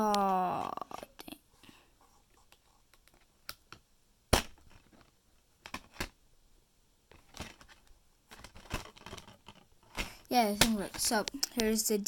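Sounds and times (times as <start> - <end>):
plastic clatter: 4.4 - 6.2, 7.1 - 11.7.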